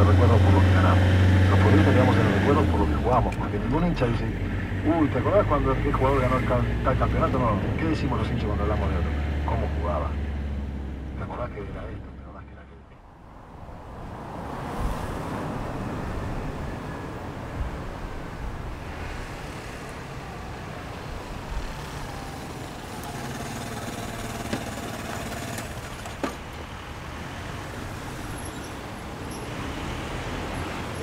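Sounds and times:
street traffic: 0.0s - 31.0s
motor scooter slowing to a stop: 21.7s - 26.6s.

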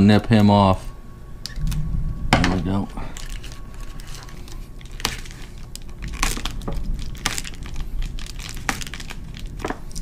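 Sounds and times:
foil tape crinkling: 3.1s - 10.0s.

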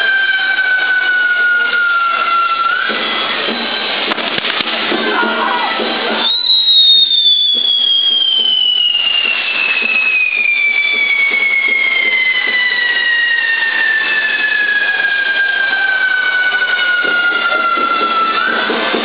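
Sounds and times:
crackling hiss of spark fountains: 0.0s - 19.0s
high pyrotechnic whistle falling: 0.0s - 19.0s
fainter whistles: 6.2s - 18.9s.

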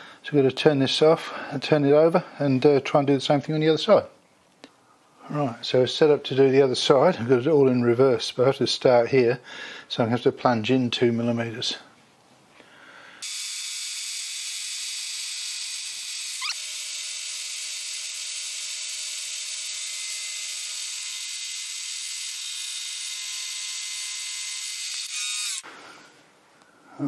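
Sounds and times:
bit cutting aluminium: 13.2s - 25.6s.

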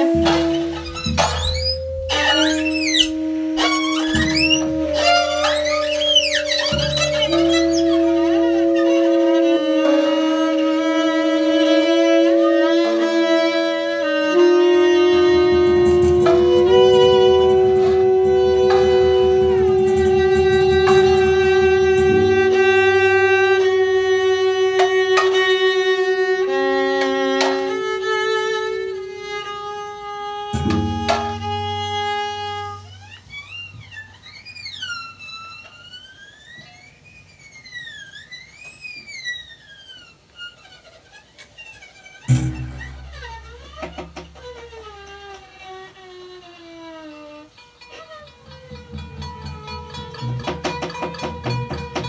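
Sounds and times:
high sliding tone: 0.0s - 40.7s, 41.5s - 45.1s
bowed violin tones: 0.0s - 52.0s
rough low drone: 14.3s - 25.6s, 27.6s - 33.9s, 42.3s - 44.8s.

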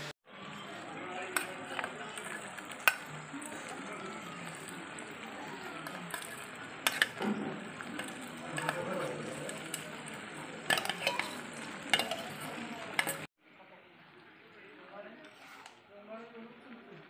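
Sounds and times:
sizzle of frying: 0.0s - 13.3s
spatula clinking on bowl: 5.8s - 13.3s.

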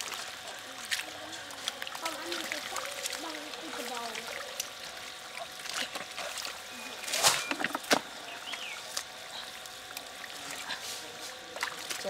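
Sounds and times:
water dripping: 0.0s - 6.7s.

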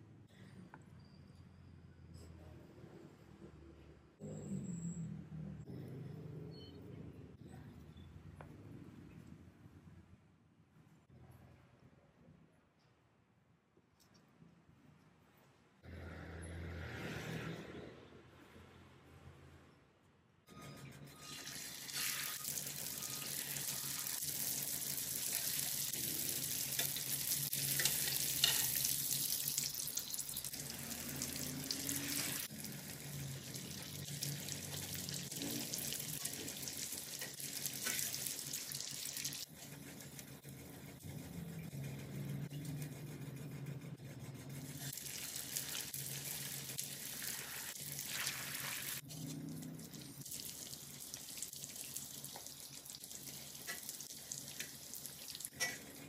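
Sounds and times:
hot oil sizzling: 21.3s - 39.5s, 44.8s - 49.1s, 49.8s - 56.0s.

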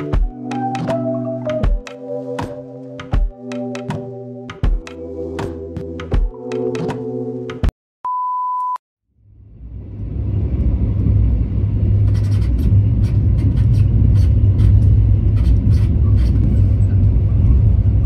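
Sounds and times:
lo-fi background music: 0.0s - 7.7s
short steady beep: 8.0s - 8.8s
train rumble inside carriage: 9.5s - 18.0s.

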